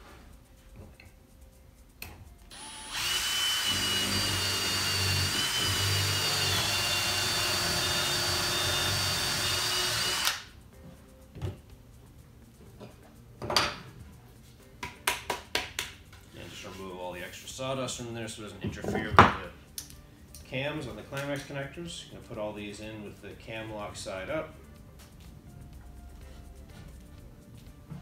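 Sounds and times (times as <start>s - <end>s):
cordless drill whining: 2.5s - 10.5s.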